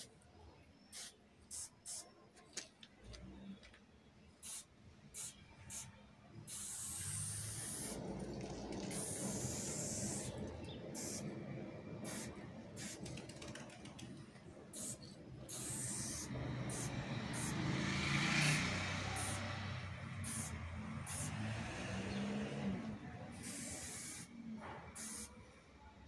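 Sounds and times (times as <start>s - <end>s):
spray paint can hissing: 0.9s - 2.1s, 4.4s - 11.3s, 12.0s - 13.4s, 14.7s - 21.4s, 23.3s - 24.3s, 24.9s - 25.4s.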